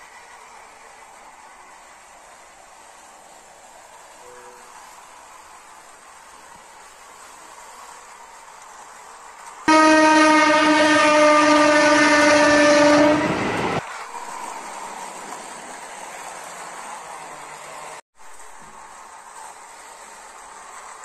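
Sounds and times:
train horn blast: 0:04.2 - 0:04.8, 0:09.7 - 0:13.8.

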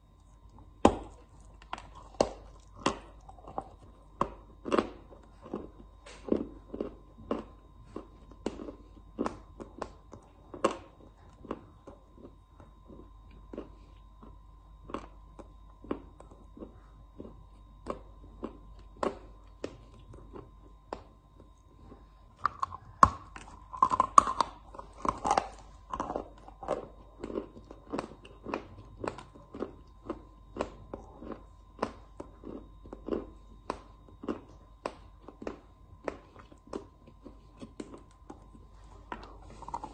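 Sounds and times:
faint high hum: 0:00.0 - 0:39.9.

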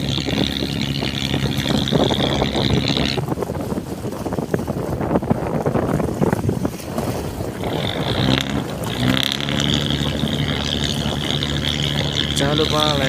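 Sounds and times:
high engine whine: 0:00.0 - 0:04.0, 0:07.0 - 0:13.0
boat engine humming: 0:00.0 - 0:13.0
wind buffeting microphone: 0:00.0 - 0:13.0.

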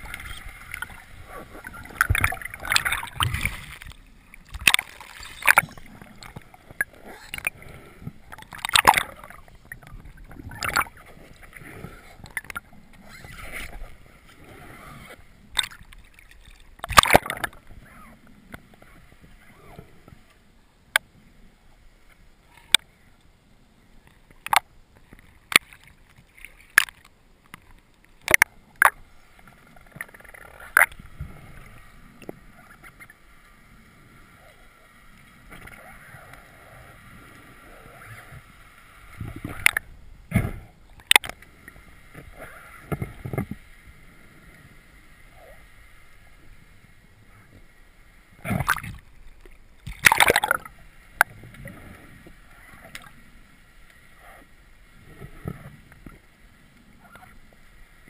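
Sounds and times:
water splashing and rushing: 0:00.0 - 0:20.2, 0:48.3 - 0:56.2
faint steady whine: 0:00.0 - 0:58.0
sharp underwater clicks and knocks: 0:01.6 - 0:07.6, 0:08.3 - 0:11.0, 0:15.5 - 0:17.6, 0:24.0 - 0:29.0, 0:39.2 - 0:41.5, 0:48.4 - 0:51.6.

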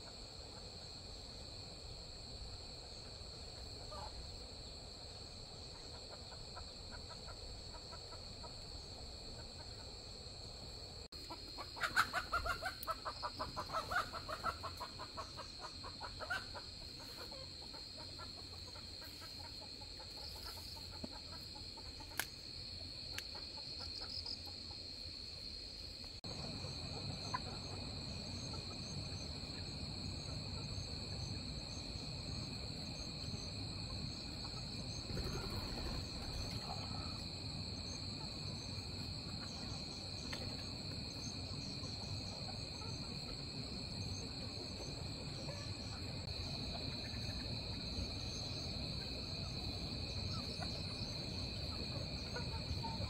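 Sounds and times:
crickets chirring: 0:00.0 - 0:53.0
chickens clucking: 0:11.2 - 0:22.3, 0:26.3 - 0:30.9, 0:38.1 - 0:53.0.

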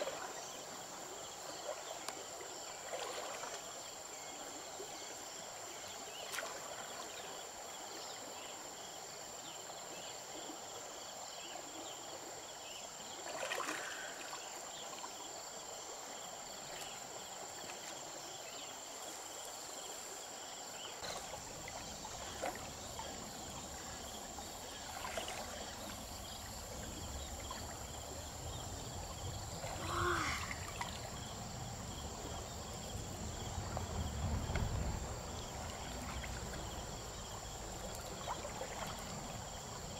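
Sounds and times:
high insect drone: 0:00.0 - 0:39.9
water sloshing and splashing: 0:02.8 - 0:03.8, 0:13.2 - 0:15.0, 0:21.0 - 0:39.9.

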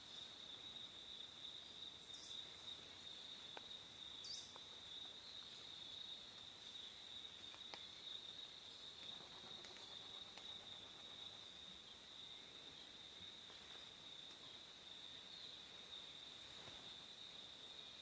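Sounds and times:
high-pitched insect trill: 0:00.0 - 0:18.0
bird chirp: 0:01.6 - 0:03.2, 0:04.2 - 0:04.6.

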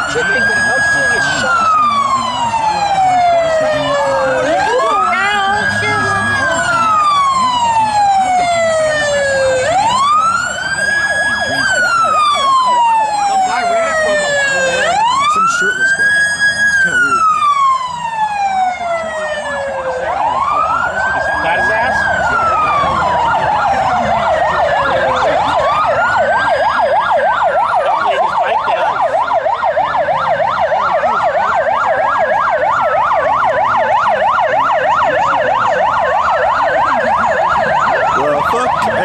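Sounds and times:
police siren wailing: 0:00.0 - 0:39.0
police siren yelping: 0:00.0 - 0:39.0.

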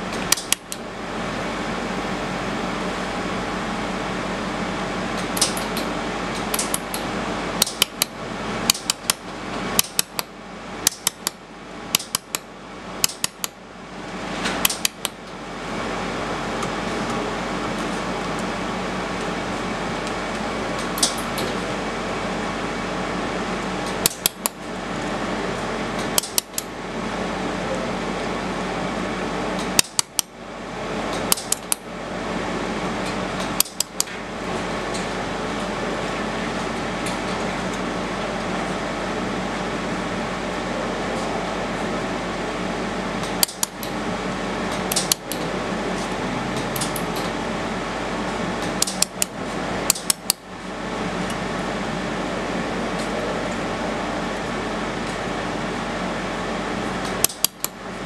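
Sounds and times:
sharp metallic clicks: 0:05.3 - 0:09.2, 0:09.8 - 0:13.6, 0:14.6 - 0:15.2, 0:26.0 - 0:26.7, 0:29.7 - 0:30.3, 0:31.2 - 0:31.8, 0:43.2 - 0:44.0, 0:44.8 - 0:45.4, 0:48.8 - 0:49.3, 0:49.9 - 0:50.4, 0:57.2 - 0:57.8.

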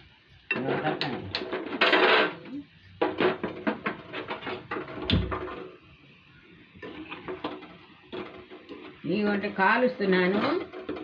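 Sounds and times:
dough frying in hot oil: 0:00.0 - 0:11.0
metal ladle scraping a pan: 0:03.2 - 0:05.8, 0:06.8 - 0:11.0.

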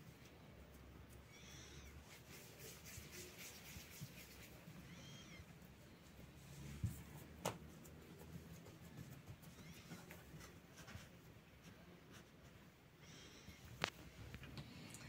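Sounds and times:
hands working soft dough: 0:00.0 - 0:12.6
faint high mewing call: 0:01.2 - 0:02.0, 0:04.8 - 0:05.5.

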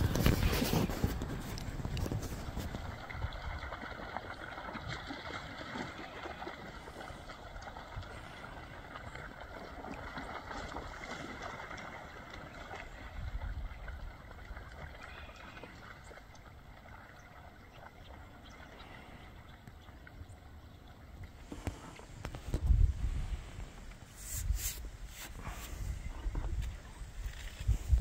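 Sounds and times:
deer splashing through water: 0:00.0 - 0:20.5.

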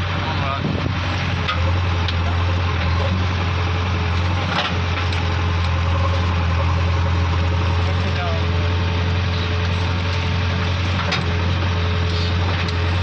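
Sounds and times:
diesel engine running: 0:00.0 - 0:13.0.

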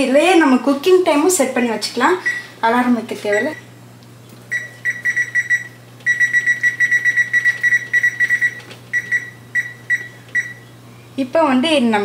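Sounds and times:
keypad beeping: 0:03.3 - 0:03.7, 0:04.5 - 0:10.7.

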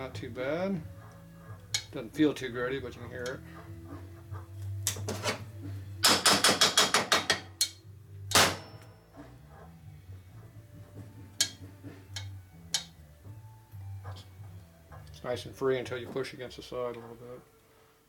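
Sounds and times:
sharp metallic taps: 0:06.0 - 0:08.9.

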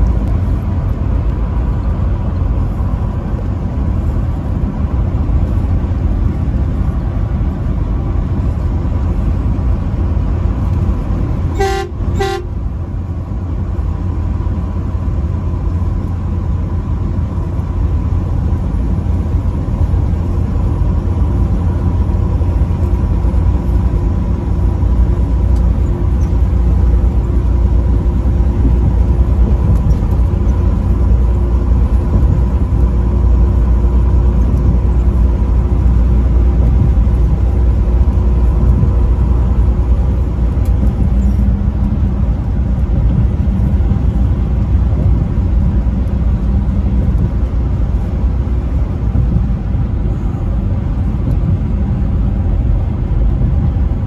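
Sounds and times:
truck engine and road drone: 0:00.0 - 0:54.0
truck horn blasts: 0:11.5 - 0:12.7.

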